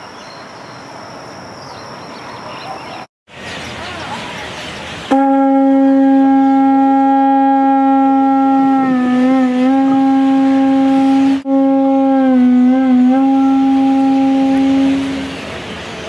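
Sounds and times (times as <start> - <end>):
conch shell trumpet note: 5.1 - 15.4.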